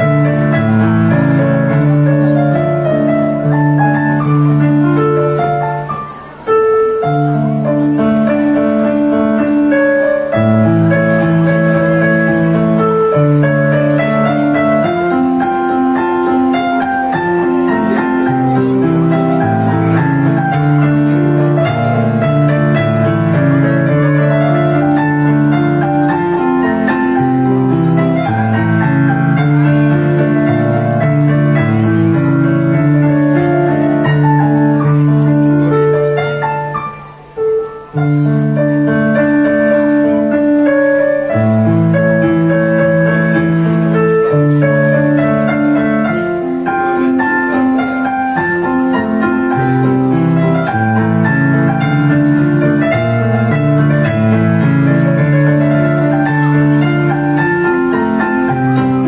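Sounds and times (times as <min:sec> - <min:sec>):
electronic keyboard melody: 0:00.0 - 0:59.0.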